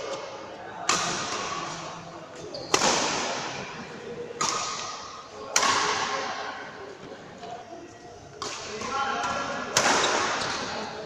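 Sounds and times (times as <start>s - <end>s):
racket hitting shuttlecock: 0.0s - 1.9s, 2.6s - 3.7s, 4.4s - 6.4s, 8.4s - 10.8s.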